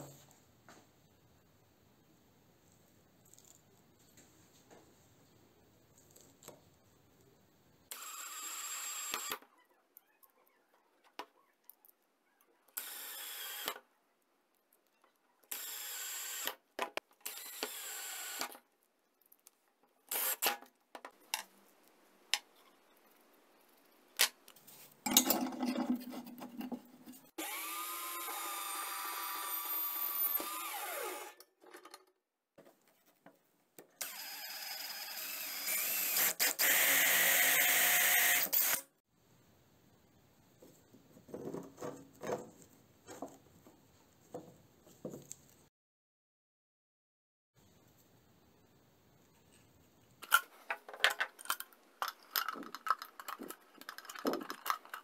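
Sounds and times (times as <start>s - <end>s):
cordless drill whirring: 7.9s - 9.4s, 12.8s - 13.8s, 15.5s - 16.6s, 17.3s - 18.5s, 20.1s - 20.6s, 27.4s - 31.4s, 34.0s - 38.8s.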